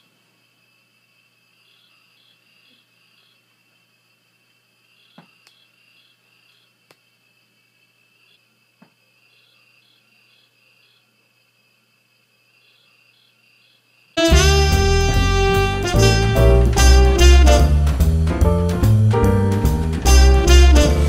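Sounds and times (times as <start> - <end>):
crickets chirping: 0.0 - 16.9
jazz music with saxophone: 14.2 - 21.0.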